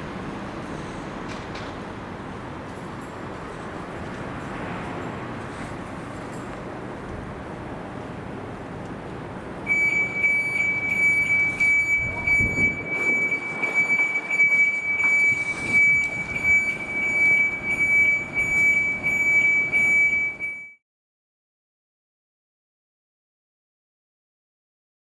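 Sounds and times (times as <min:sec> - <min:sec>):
road noise: 0:00.0 - 0:20.6
electronic alarm pulsing high tone: 0:09.7 - 0:20.8.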